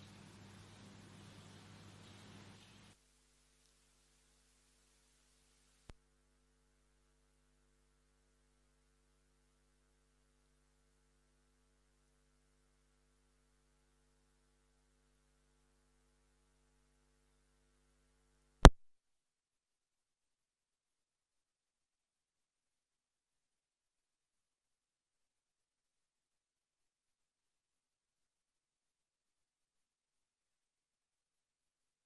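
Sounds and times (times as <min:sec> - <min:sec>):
faint electrical hum: 0:00.0 - 0:18.8.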